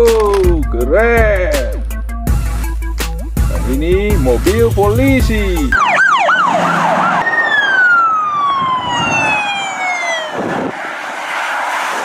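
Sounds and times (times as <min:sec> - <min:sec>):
road noise: 0:01.8 - 0:12.0
police siren: 0:05.7 - 0:12.0.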